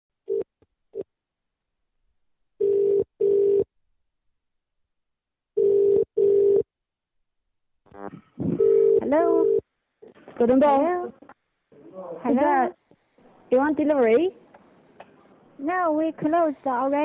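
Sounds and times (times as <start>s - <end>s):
telephone ringback tone: 2.6s - 3.6s, 5.6s - 6.6s, 8.6s - 9.6s.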